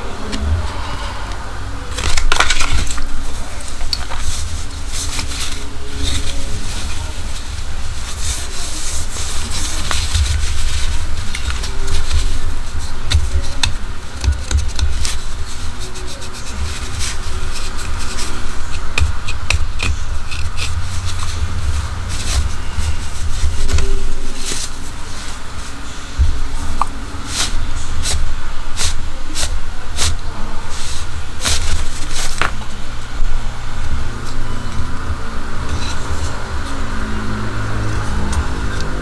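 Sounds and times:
low rumble: 0.0 - 3.9
hands rubbing a box: 2.0 - 32.8.

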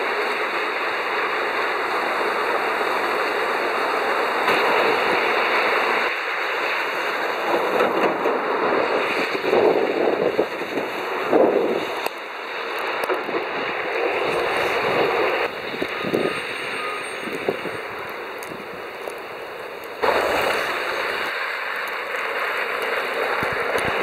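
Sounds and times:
tyres hissing through slush: 13.7 - 24.0.

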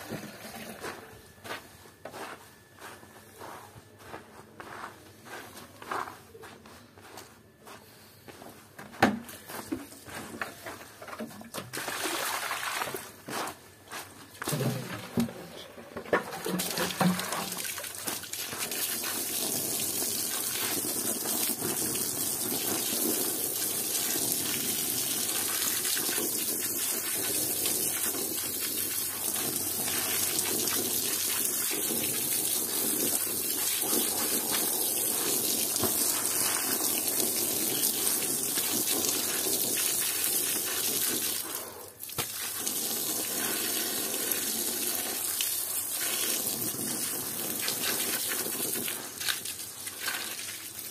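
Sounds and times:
hose water splashing on stone: 11.5 - 13.2, 16.1 - 50.9.

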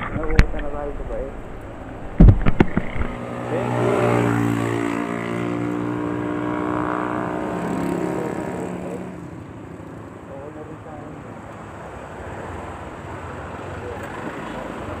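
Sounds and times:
sharp knocks: 2.0 - 3.2.

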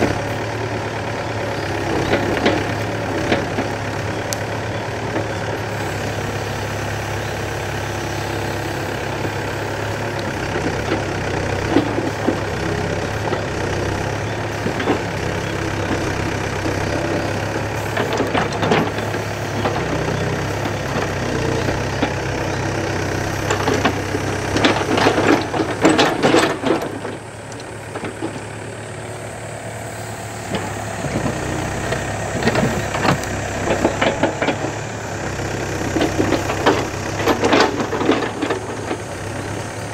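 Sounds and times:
diesel engine running: 0.0 - 39.9
excavator bucket scraping soil: 14.3 - 39.9.

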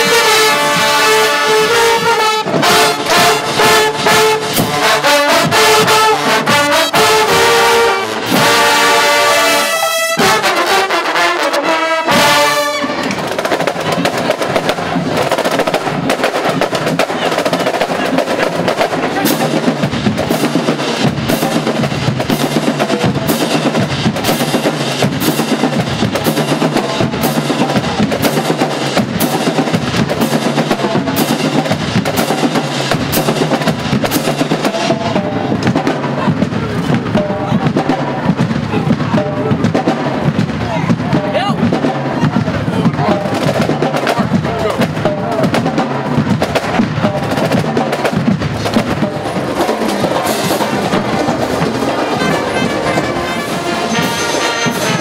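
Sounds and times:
brass band chord: 0.0 - 13.5, 48.6 - 55.0
snare and bass drums marching: 0.0 - 55.0.

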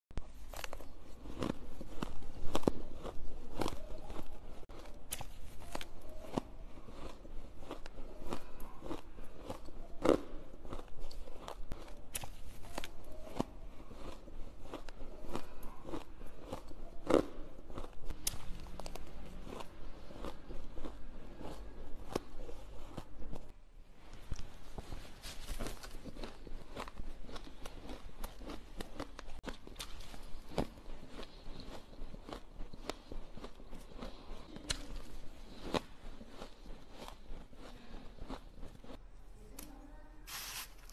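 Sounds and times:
person chewing: 0.2 - 39.0
ice crunching: 24.8 - 32.2.

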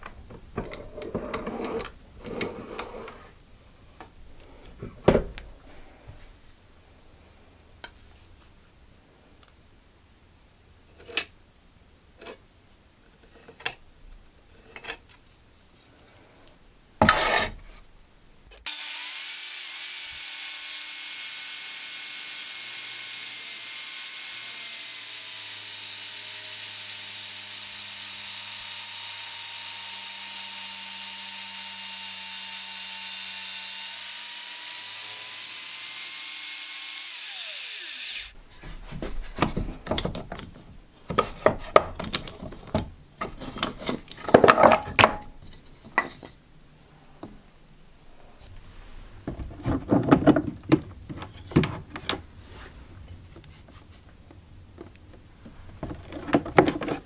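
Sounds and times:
wooden scraping and knocking: 0.0 - 3.4, 38.5 - 46.4, 49.2 - 54.0, 55.5 - 57.0.

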